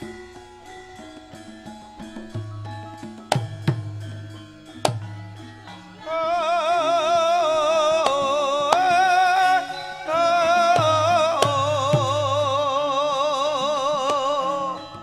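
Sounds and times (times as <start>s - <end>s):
gamelan music: 0.0s - 15.0s
woman singing long held notes: 5.6s - 15.0s.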